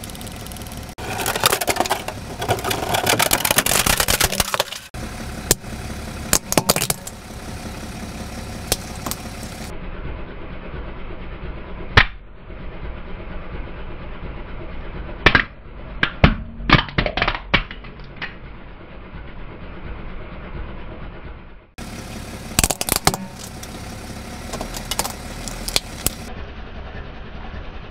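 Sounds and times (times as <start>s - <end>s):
car engine running: 0.0s - 27.9s
plastic blocks cracking under tyre: 1.0s - 5.0s, 22.6s - 23.7s, 24.5s - 26.3s.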